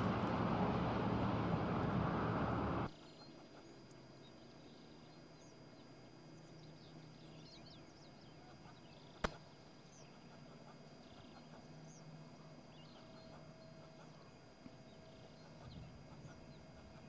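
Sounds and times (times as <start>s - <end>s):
low hum: 0.0s - 2.9s
sharp click: 9.2s - 9.4s.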